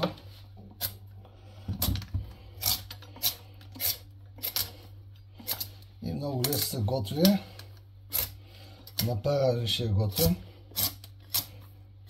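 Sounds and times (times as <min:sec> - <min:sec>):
peeler scraping squash rind: 0:02.4 - 0:07.4, 0:08.1 - 0:11.7.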